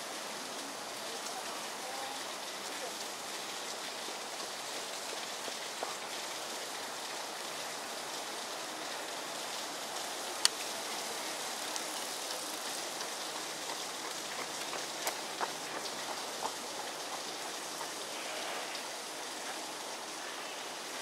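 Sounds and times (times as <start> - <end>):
outdoor background hiss: 0.0 - 21.0.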